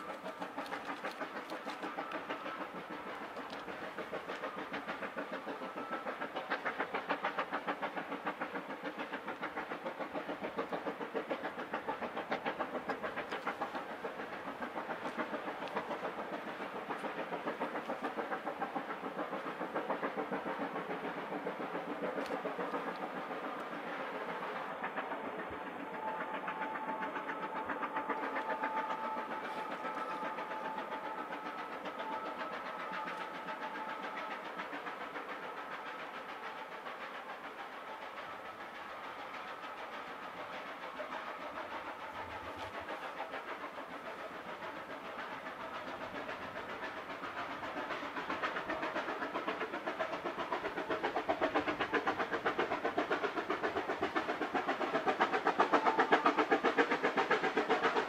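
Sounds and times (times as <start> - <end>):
steam locomotive chuffing: 0.0 - 58.0.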